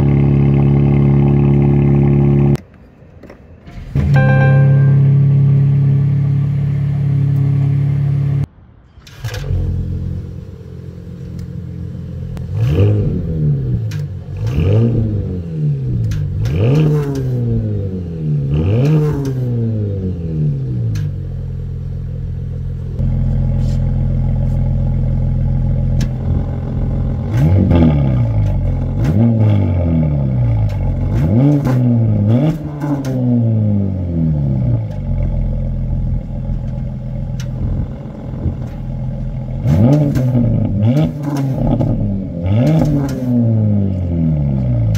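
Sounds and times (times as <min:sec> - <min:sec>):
car engine revving: 0:09.4 - 0:44.9
car engine idling: 0:20.5 - 0:27.4, 0:34.0 - 0:39.7.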